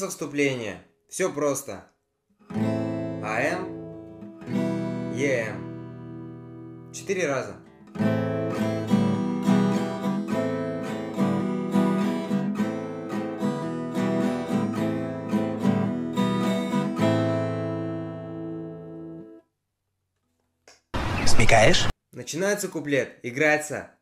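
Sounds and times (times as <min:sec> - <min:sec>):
acoustic guitar strumming: 0:02.4 - 0:07.0, 0:07.6 - 0:19.4.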